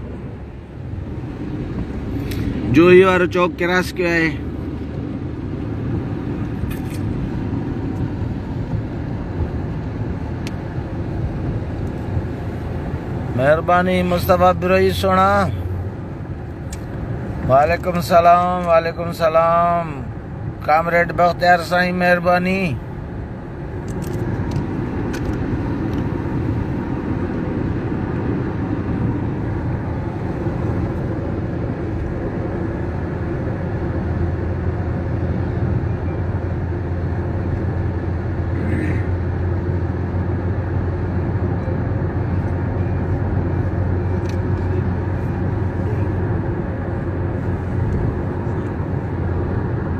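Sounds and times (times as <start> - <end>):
car engine and tyre noise: 0.0 - 49.9
low drone: 23.5 - 49.9.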